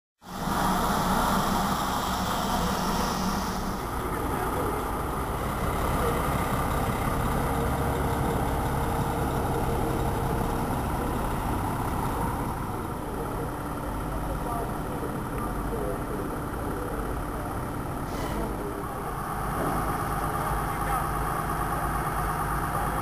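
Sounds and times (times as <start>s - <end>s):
lorry diesel engine rumbling: 0.2s - 23.0s.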